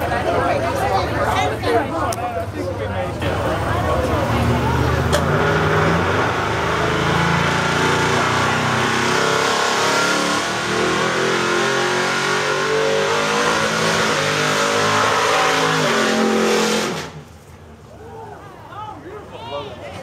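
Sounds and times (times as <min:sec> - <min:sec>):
race car engine at high revs: 0:03.2 - 0:17.3.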